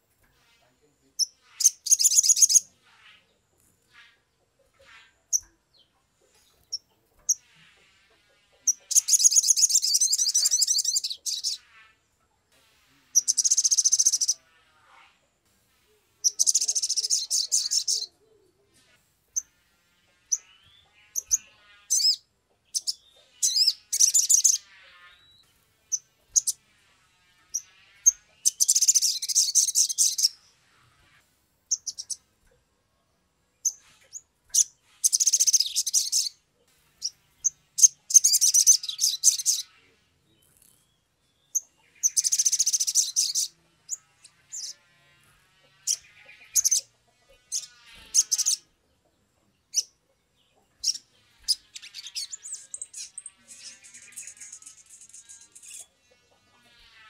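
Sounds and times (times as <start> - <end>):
bird sharp chirps: 1.1 - 4.2, 8.6 - 11.9, 13.2 - 14.4, 20.2 - 26.6, 31.7 - 32.2, 33.6 - 36.4, 37.0 - 44.8
bird trilling song: 1.1 - 7.8, 8.6 - 11.8, 13.2 - 14.4, 16.2 - 18.6, 20.2 - 26.6, 27.4 - 30.6, 31.6 - 32.3, 33.6 - 36.4, 37.0 - 44.9, 45.7 - 56.9.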